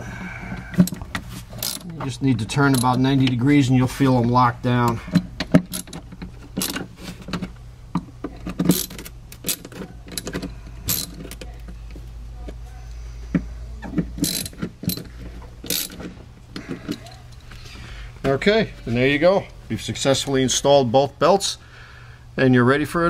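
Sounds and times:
steady low hum: 0.0 - 23.0
allen tool clicks and rattles: 0.8 - 1.9, 2.7 - 3.4, 5.1 - 11.6, 14.2 - 17.5.

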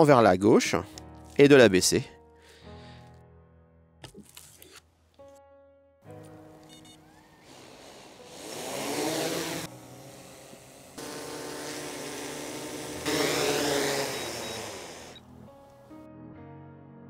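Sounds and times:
drone propellers whining: 7.1 - 15.2.

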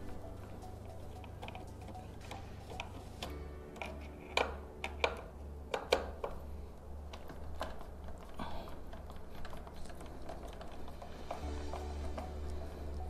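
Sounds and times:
steady low hum: 0.0 - 13.0
screwdriver clicks and knocks: 2.3 - 6.4.

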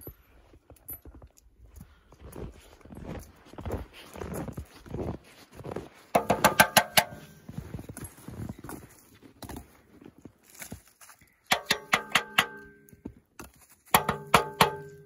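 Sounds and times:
wooden sticks knocking together: 6.2 - 7.3, 11.5 - 12.8, 13.9 - 15.0.

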